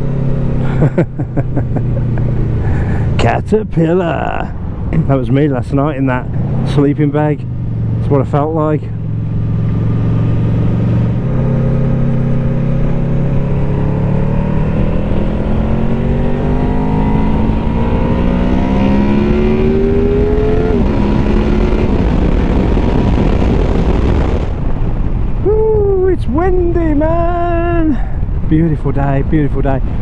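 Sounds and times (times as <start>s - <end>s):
motorcycle engine accelerating: 0.0s - 3.2s, 5.8s - 25.5s.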